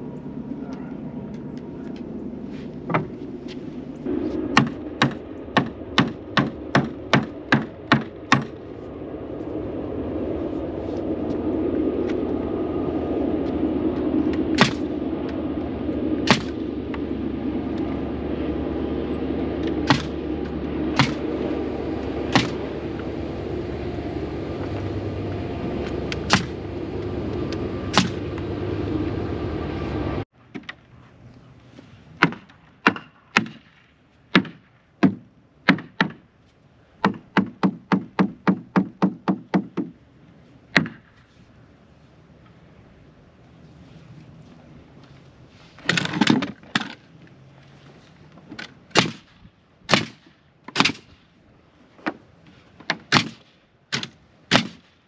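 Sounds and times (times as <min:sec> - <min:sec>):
air compressor hum: 0:01.7 - 0:30.3
nail gun firing: 0:21.0 - 0:21.2, 0:22.3 - 0:22.6, 0:26.3 - 0:26.6, 0:48.9 - 0:49.3, 0:49.9 - 0:51.2, 0:52.9 - 0:54.9.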